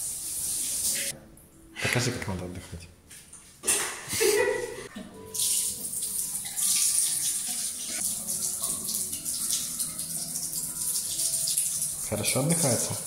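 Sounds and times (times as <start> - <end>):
water running and splashing: 0.0 - 1.1, 5.3 - 13.0.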